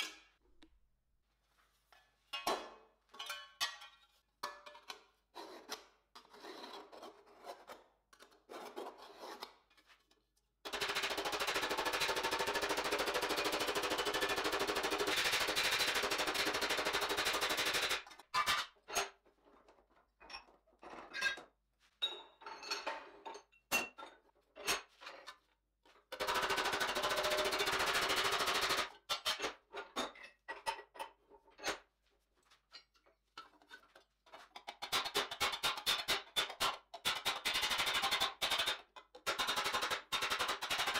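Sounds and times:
metal clanks and taps: 1.9s - 5.1s.

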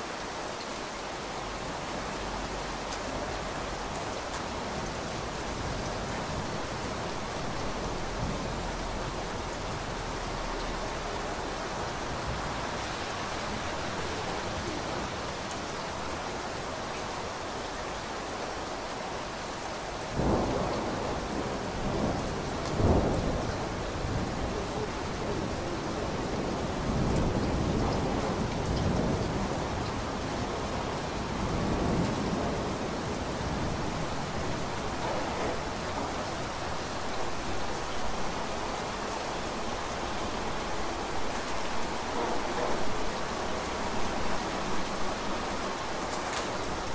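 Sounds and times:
steady rain falling: 0.0s - 46.9s
thunder clap and rumble: 20.2s - 24.6s, 26.3s - 36.6s.

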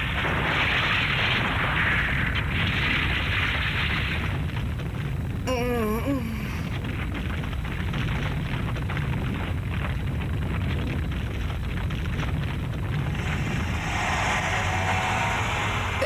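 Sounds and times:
deep rumble of crumbling rock: 0.0s - 5.5s, 6.4s - 16.0s
woman groaning: 5.5s - 6.7s.

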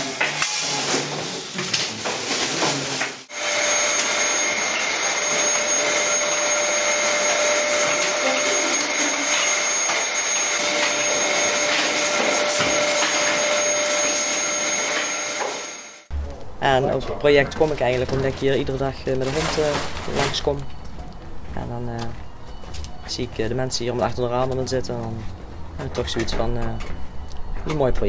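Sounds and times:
vacuum cleaner whining: 0.0s - 16.1s.

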